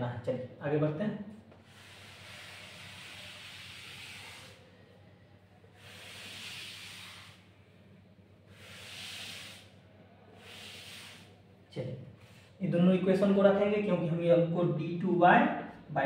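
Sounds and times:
eraser wiping blackboard: 1.6s - 4.7s, 5.8s - 7.5s, 8.5s - 9.8s, 10.4s - 11.4s.

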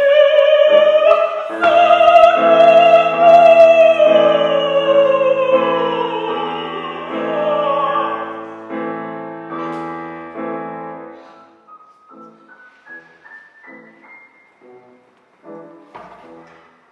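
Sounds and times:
operatic singing: 0.0s - 9.4s
piano chords: 0.0s - 16.9s.

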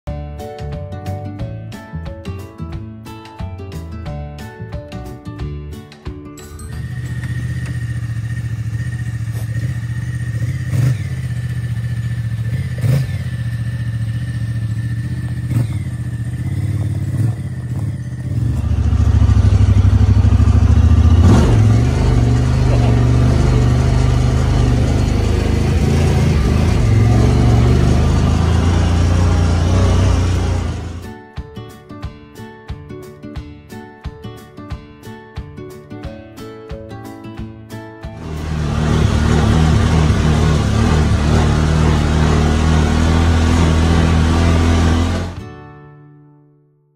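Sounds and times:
vehicle engine running: 6.6s - 31.1s, 38.2s - 45.4s.

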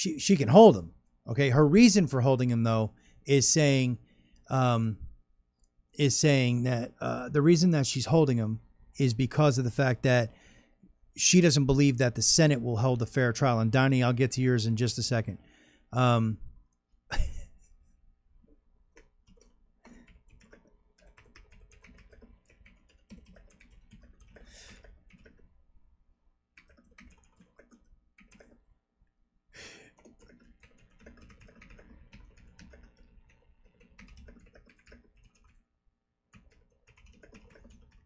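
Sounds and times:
typing on keyboard: 18.9s - 25.5s, 26.6s - 28.6s, 29.9s - 35.6s, 36.3s - 38.0s.

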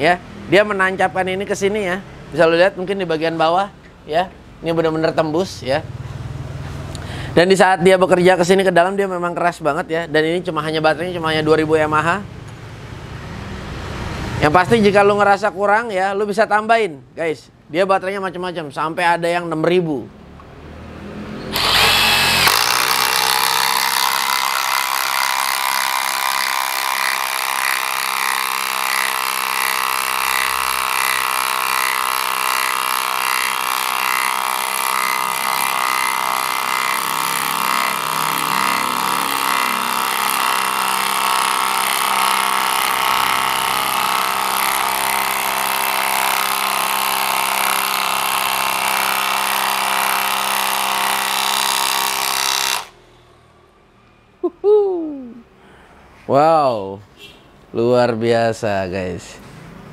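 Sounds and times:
impact driver hammering: 21.5s - 53.0s.

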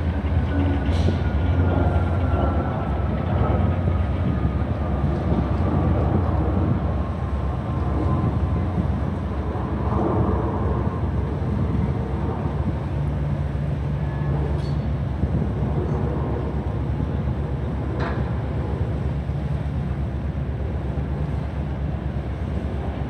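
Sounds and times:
ship engines rumbling: 0.0s - 23.0s.

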